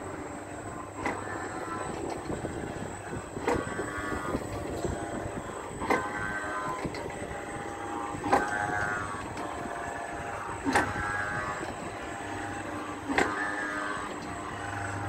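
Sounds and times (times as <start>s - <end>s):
carousel tones: 0.0s - 15.0s.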